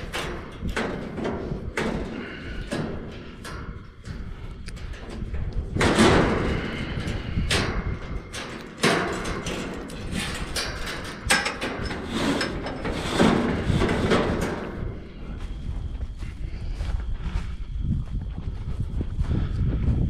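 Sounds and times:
hogs crashing against wire trap: 5.7s - 7.9s.

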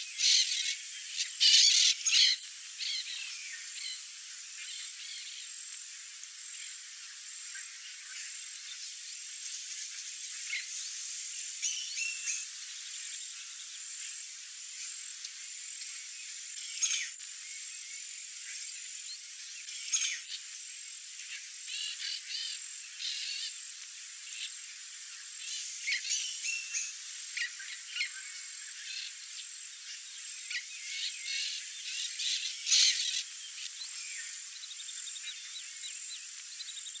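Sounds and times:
high-pitched insect drone: 16.0s - 37.0s.

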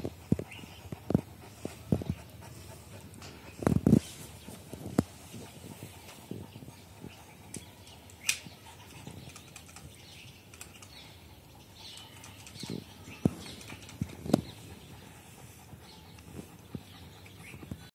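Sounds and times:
sharp clicks: 7.5s - 11.0s.

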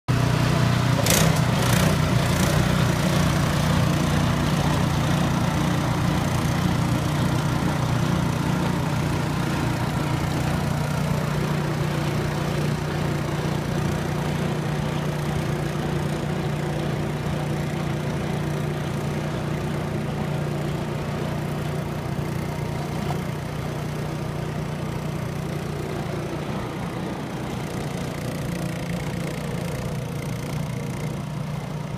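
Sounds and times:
engine running steadily: 0.1s - 31.9s.

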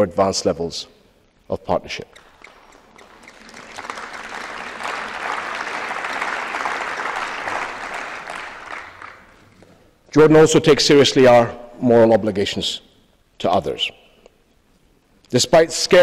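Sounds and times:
audience applause: 2.2s - 9.6s.

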